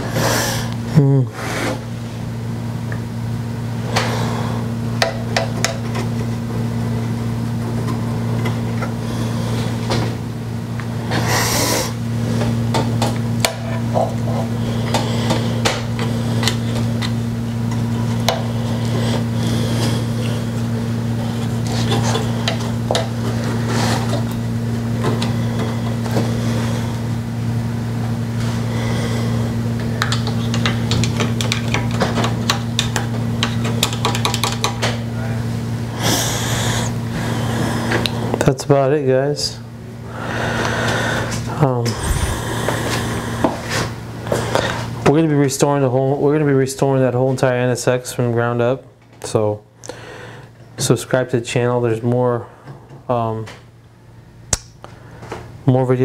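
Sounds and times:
low hum: 39.6s - 44.9s.

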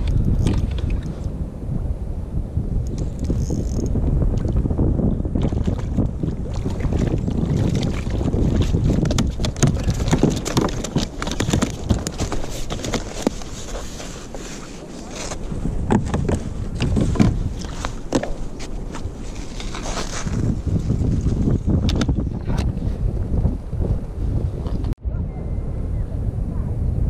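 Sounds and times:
water lapping at kayak: 0.0s - 1.3s, 5.3s - 22.6s
wind buffeting microphone: 0.0s - 27.0s
clicks and knocks of handling: 9.0s - 13.9s.

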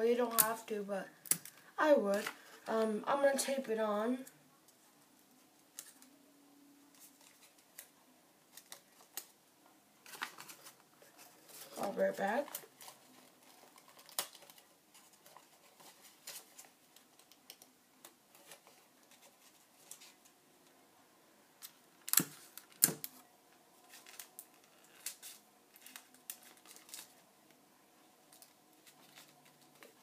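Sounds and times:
tape and paper handling clicks: 21.6s - 23.2s, 23.9s - 27.2s.

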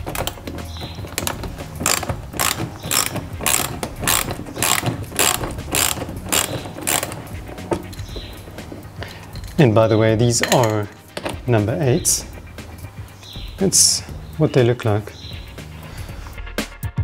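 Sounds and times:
socket ratchet clicking: 0.0s - 9.6s.

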